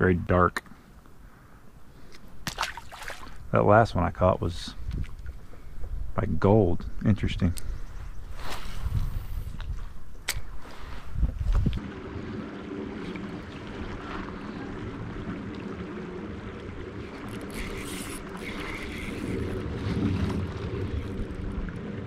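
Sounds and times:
creek water rippling: 0.8 - 3.8, 7.6 - 22.0
wind buffeting microphone: 4.7 - 22.0.

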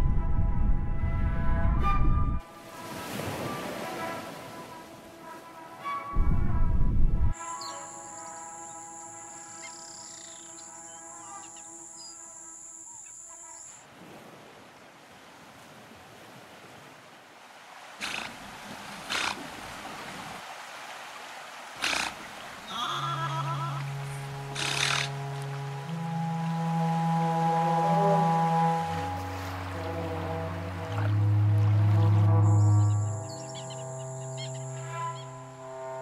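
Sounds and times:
wash of noise: 17.9 - 36.0
rough animal calls: 18.0 - 18.5, 19.1 - 19.5, 21.8 - 25.4
sustained pitched tones: 23.1 - 36.0.

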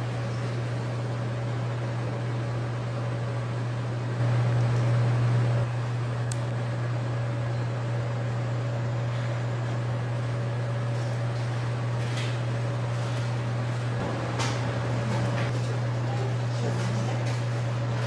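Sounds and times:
ventilation machinery hum: 0.0 - 18.0.

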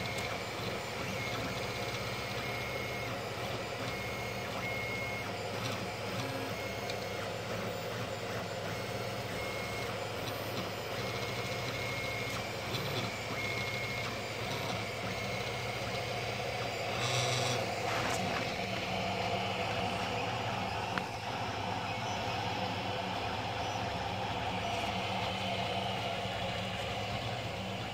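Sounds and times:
stepper motors whining: 0.0 - 27.9
fan hum: 16.0 - 27.9.

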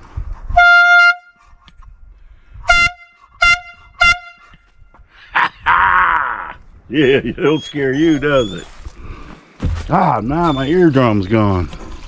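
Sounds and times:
air horn blasts: 0.5 - 1.4, 2.6 - 4.6.

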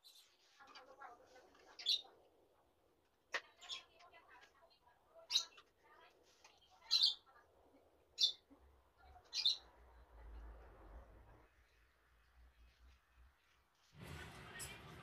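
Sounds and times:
bird chirping: 8.1 - 10.0.

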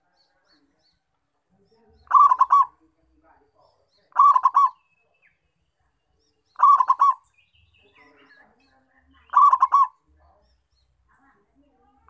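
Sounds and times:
dove cooing: 2.1 - 2.8, 4.1 - 4.8, 6.6 - 7.2, 9.3 - 10.0.

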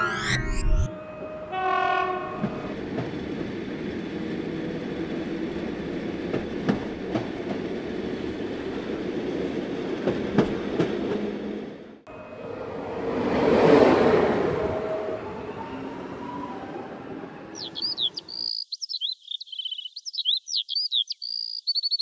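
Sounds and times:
train rumbling: 0.8 - 18.2
train horn: 0.9 - 2.7, 14.3 - 17.1.

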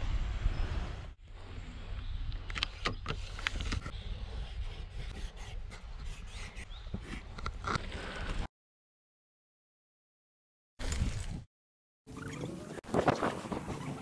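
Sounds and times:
wind rumbling on microphone: 0.0 - 6.9.

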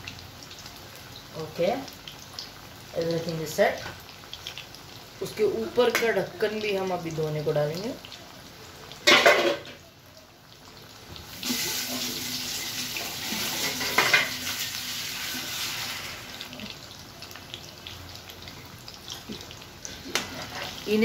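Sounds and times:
chicken sizzling in oil: 0.0 - 21.0
metal pan lid clanking: 9.0 - 9.7.

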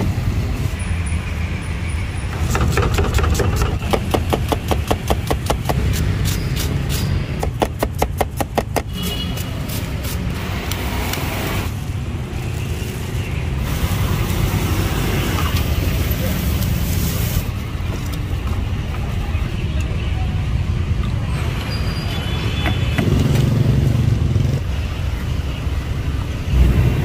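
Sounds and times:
traffic rumble: 0.0 - 27.0
cleaver chopping on wooden block: 2.4 - 9.0.

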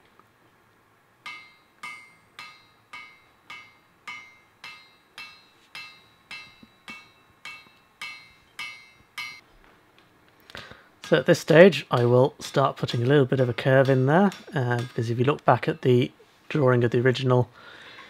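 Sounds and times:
hammer striking hot iron on anvil: 1.2 - 9.4, 11.0 - 16.0
metallic anvil ring: 1.2 - 9.4, 11.0 - 16.0.

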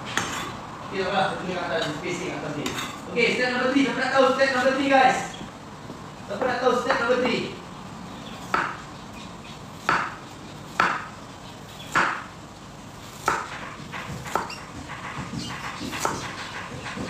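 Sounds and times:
knife cutting on wooden board: 8.4 - 12.3, 13.0 - 17.0.

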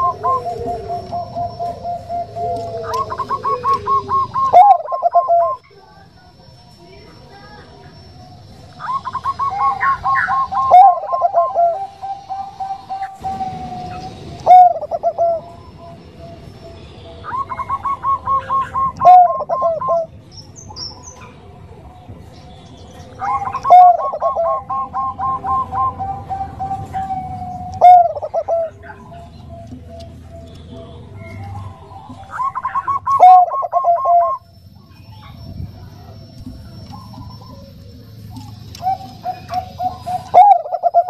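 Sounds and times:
dove cooing: 0.0 - 5.7, 8.2 - 22.4, 23.0 - 34.5, 35.2 - 41.0.

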